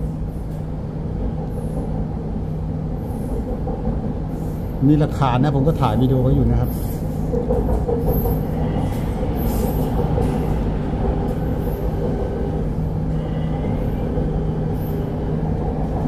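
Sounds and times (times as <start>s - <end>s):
low train hum: 0.0s - 16.0s
metro train wheels rumbling on track: 0.0s - 16.0s.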